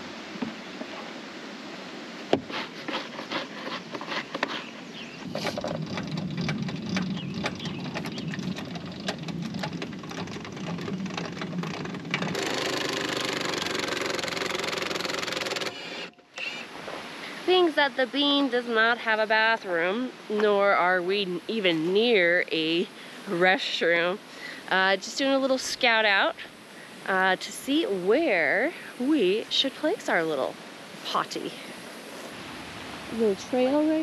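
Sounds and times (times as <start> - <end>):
small motor running: 12.3 - 16.1
cordless drill whirring: 12.4 - 16.6.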